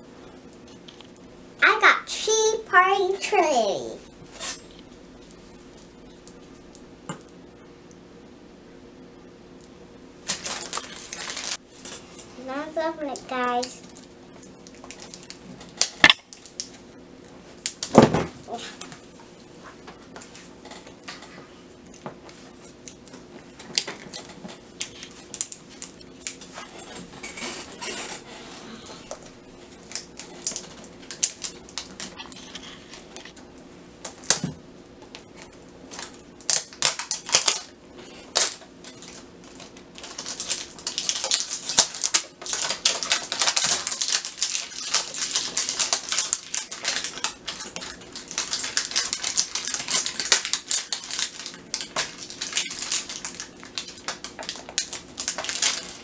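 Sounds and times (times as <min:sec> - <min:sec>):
faint steady hum: 0:00.0 - 0:56.0
plastic wrap crinkling: 0:10.2 - 0:16.8, 0:21.9 - 0:28.3, 0:29.1 - 0:33.4, 0:35.1 - 0:56.0.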